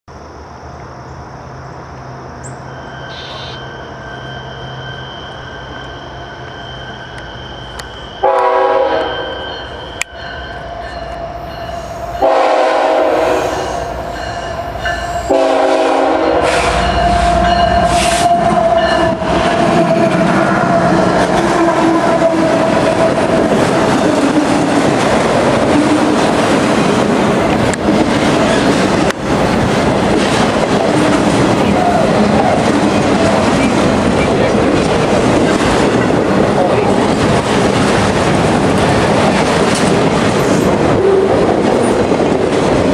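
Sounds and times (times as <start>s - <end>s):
diesel locomotives passing: 0.1s - 42.9s
locomotive air horn blasts: 8.2s - 9.5s, 12.0s - 14.0s, 15.2s - 23.4s
train wheel clatter on rails: 16.4s - 42.9s.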